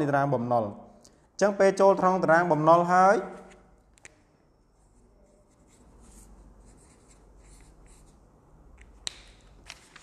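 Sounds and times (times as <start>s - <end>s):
marker scratching on paper: 4.8s - 8.3s.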